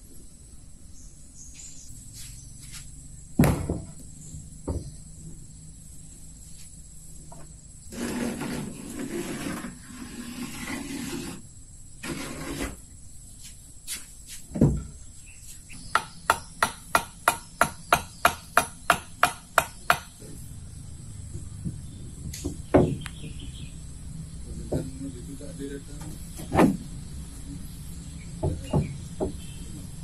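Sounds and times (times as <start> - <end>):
hammer striking wood: 3.4 - 4.0, 15.9 - 20.2, 22.3 - 23.4, 28.4 - 29.4
heavy thump: 3.4 - 4.0, 26.0 - 26.9
rough noise: 7.9 - 12.9.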